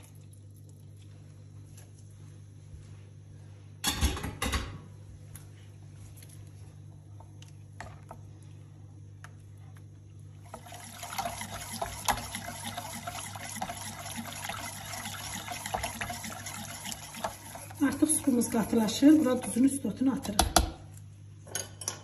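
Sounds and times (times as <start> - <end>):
steady low hum: 4.8 - 22.0
thick soup sloshing: 10.6 - 17.8.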